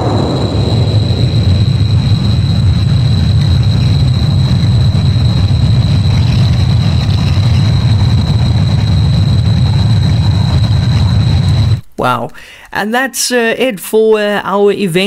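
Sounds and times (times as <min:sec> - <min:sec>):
low rumble: 0:00.0 - 0:11.9.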